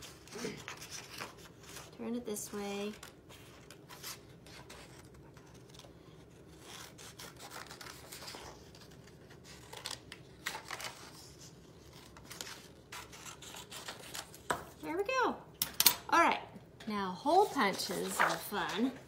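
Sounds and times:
paper rustling: 0:02.8 - 0:14.6, 0:17.4 - 0:19.0
scissors snipping paper: 0:06.6 - 0:08.4.

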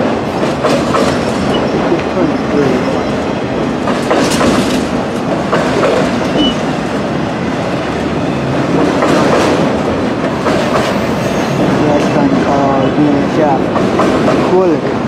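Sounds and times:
wheels clacking over rail joints: 0:00.0 - 0:14.9
freight cars rumbling: 0:00.0 - 0:15.0
high wheel squeal: 0:06.2 - 0:06.7, 0:10.9 - 0:11.7.

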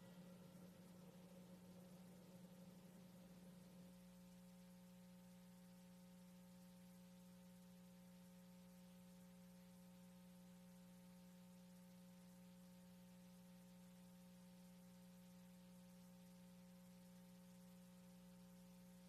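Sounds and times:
faint electrical hum: 0:00.0 - 0:19.0
low hiss: 0:00.0 - 0:19.0.

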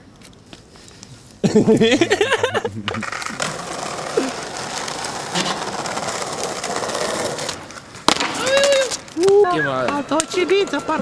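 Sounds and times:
skateboard wheels rolling on stone: 0:02.8 - 0:11.0.

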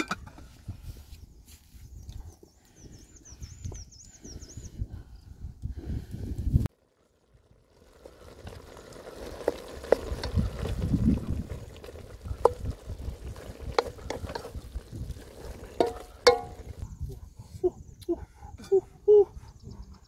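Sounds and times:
wooden spoon stirring: 0:11.4 - 0:16.8.

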